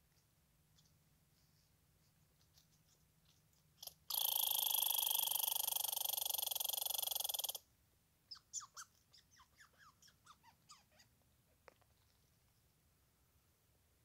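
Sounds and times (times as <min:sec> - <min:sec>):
squirrel buzzy chatter: 0:03.8 - 0:07.6.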